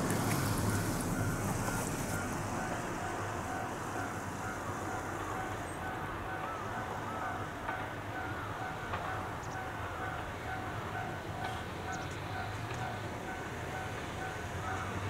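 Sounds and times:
vehicle passing: 0:00.0 - 0:06.0
traffic hum: 0:00.0 - 0:15.0.

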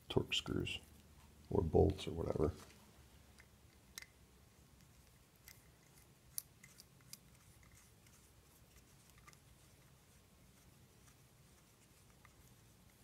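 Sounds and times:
small metallic screw clicks: 0:03.4 - 0:04.2, 0:04.8 - 0:07.8.

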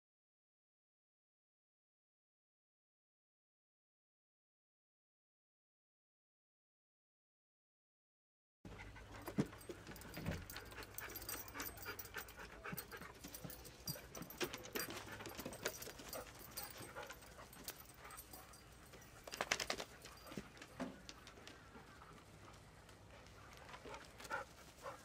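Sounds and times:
dogs panting: 0:08.7 - 0:25.0
dogs scuffling: 0:08.7 - 0:25.0.

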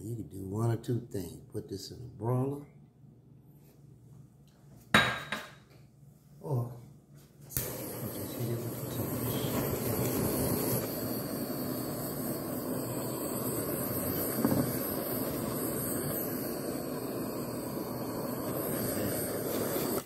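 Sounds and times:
blowtorch hissing: 0:07.5 - 0:20.0.

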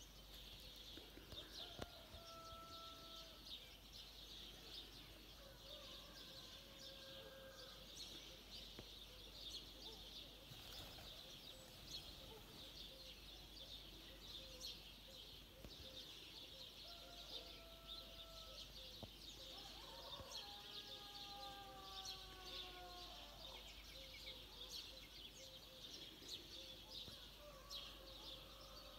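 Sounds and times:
small birds twittering: 0:08.1 - 0:21.4.

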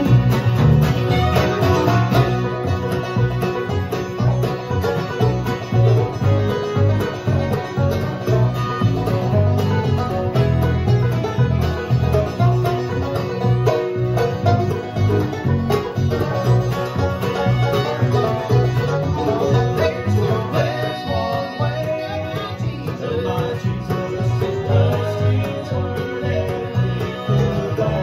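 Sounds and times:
acoustic guitars: 0:00.0 - 0:28.0
banjo: 0:00.0 - 0:28.0
bluegrass band playing: 0:00.0 - 0:28.0
fiddle: 0:00.0 - 0:28.0
upright bass: 0:00.0 - 0:28.0.

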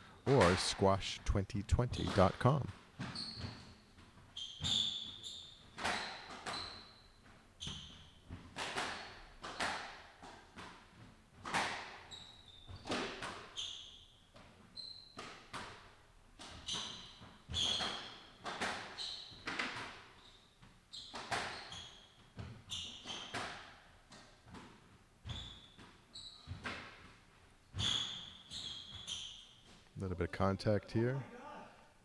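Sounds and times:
shoes squeaking on hardwood: 0:02.0 - 0:08.2, 0:16.5 - 0:23.4, 0:24.5 - 0:29.9
squash ball hitting rackets and walls: 0:02.0 - 0:29.8.

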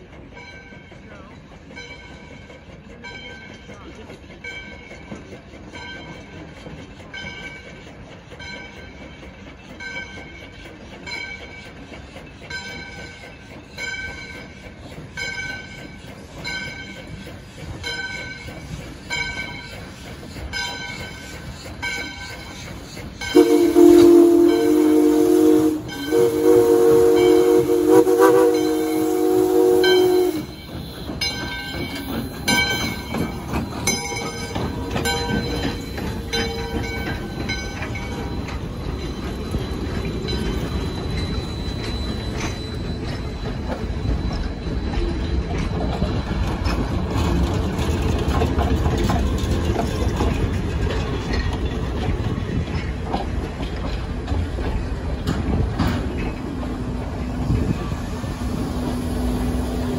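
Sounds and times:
train wheels clicking over rail joints: 0:00.0 - 0:59.9
steam locomotive whistle: 0:23.2 - 0:31.4.

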